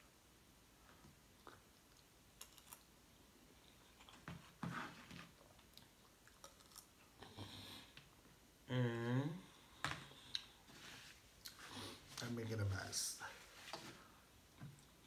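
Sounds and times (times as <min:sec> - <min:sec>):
person chewing food: 0:01.3 - 0:02.9, 0:05.3 - 0:08.0.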